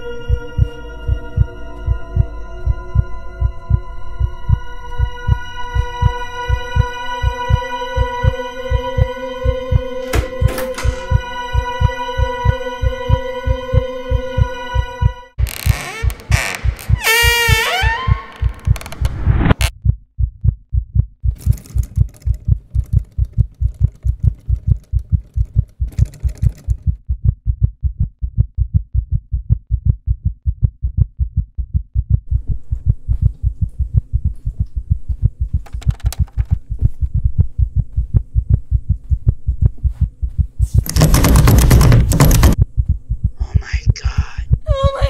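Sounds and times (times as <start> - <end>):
heartbeat thumps: 0.3 - 15.5, 16.3 - 45.0.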